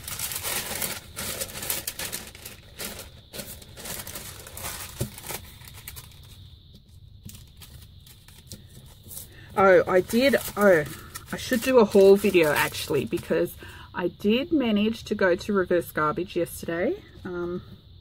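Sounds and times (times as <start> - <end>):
paper rustling and crinkling: 0.0 - 13.4.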